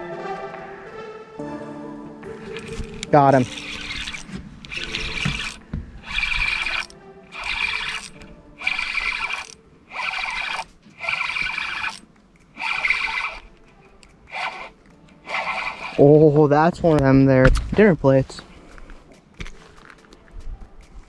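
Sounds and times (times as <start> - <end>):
fishing reel whirring: 2.4 - 16.4.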